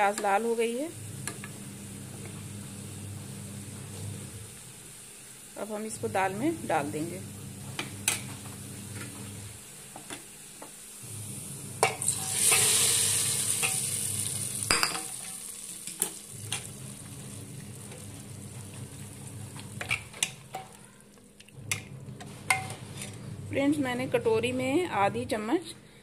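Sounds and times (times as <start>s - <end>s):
oil sizzling and hissing: 0.9s - 21.2s
spoon scraping metal pans: 21.7s - 23.2s.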